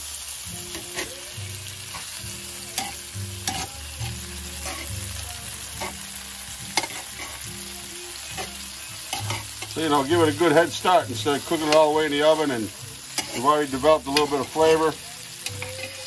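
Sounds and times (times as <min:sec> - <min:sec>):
tomatoes sizzling in oil: 0:00.0 - 0:16.0
metal tongs clicking on pan: 0:02.8 - 0:03.7, 0:08.4 - 0:09.8, 0:13.1 - 0:13.5, 0:14.1 - 0:14.8, 0:15.4 - 0:16.0.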